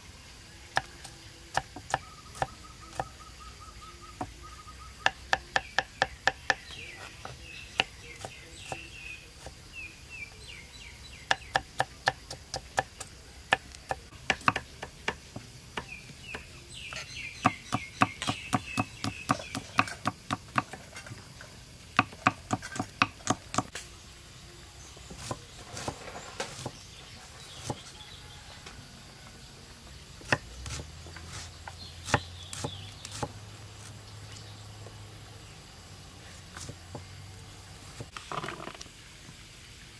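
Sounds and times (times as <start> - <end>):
faint high chirping: 0.0 - 14.9, 15.8 - 20.4
knife chopping on wooden board: 1.5 - 3.0, 11.3 - 21.1, 22.0 - 23.7, 25.1 - 26.8, 30.2 - 33.4.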